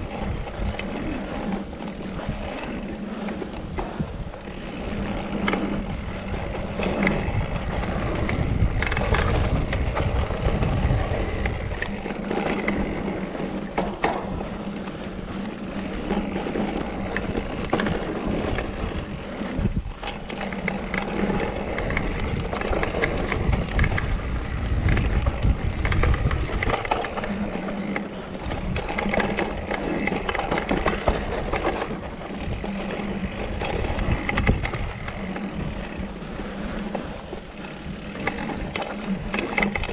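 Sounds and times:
bike rattling over bumps: 0:00.0 - 0:39.9
bike tyres crunching over dirt: 0:00.0 - 0:39.9
wind rumble on microphone: 0:00.0 - 0:39.9.

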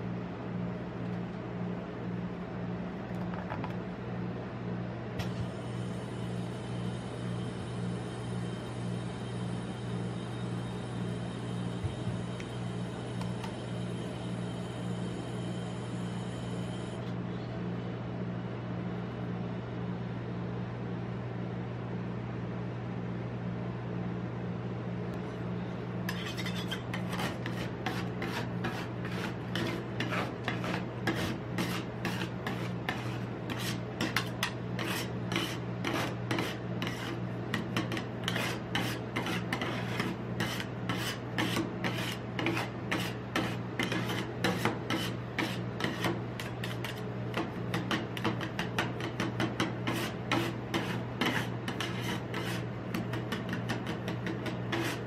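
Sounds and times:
steady low hum: 0:00.0 - 0:55.0
metal spatulas chopping and scraping: 0:26.1 - 0:55.0.

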